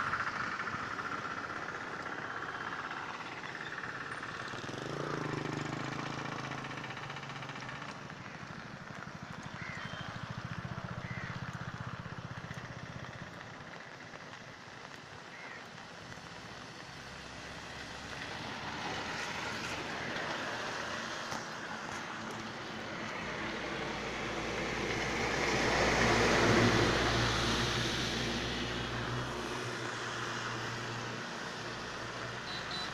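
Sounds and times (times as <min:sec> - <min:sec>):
vehicle passing by: 0:04.5 - 0:07.9, 0:16.8 - 0:32.4.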